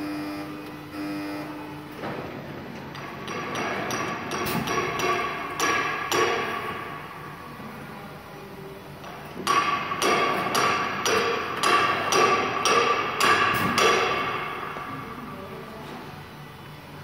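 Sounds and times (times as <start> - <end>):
high machine whine: 0.0 - 5.6
metallic clacks of die-cutting machine: 2.9 - 6.9, 9.0 - 14.8.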